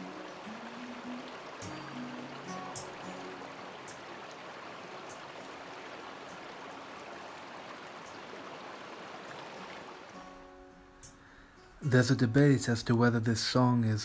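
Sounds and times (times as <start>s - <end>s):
brook flowing over stones: 0.0s - 10.7s.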